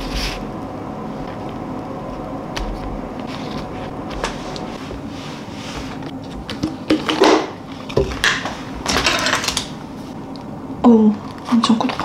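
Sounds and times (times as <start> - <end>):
low hum: 0.0 - 11.5.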